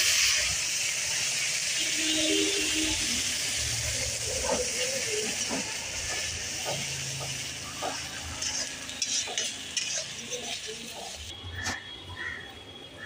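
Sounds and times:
onion paste sizzling in hot oil: 0.0 - 12.3
steel spatula scraping: 7.8 - 11.1.

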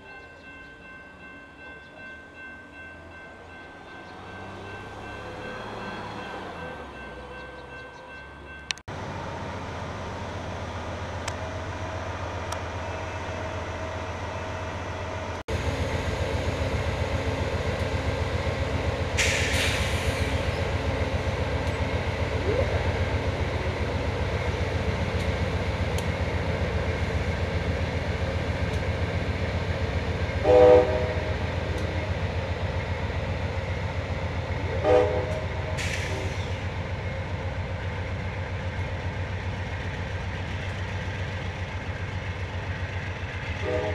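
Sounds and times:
diesel locomotive droning: 0.0 - 43.9
air hissing: 19.2 - 20.6
train air horn blasts: 30.4 - 31.4, 34.7 - 36.3, 43.6 - 43.9.

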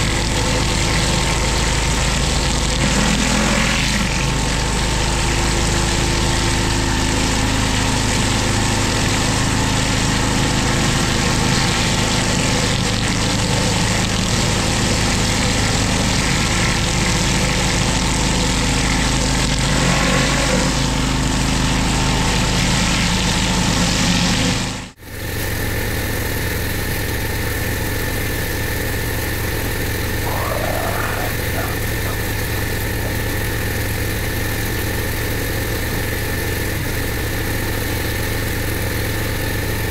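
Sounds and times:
pressure washer engine running: 0.0 - 39.9
surface cleaner spraying water: 27.6 - 39.9.

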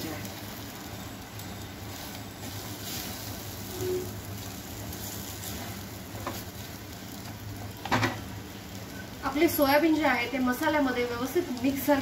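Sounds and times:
food sizzling in a pot: 0.0 - 12.0.

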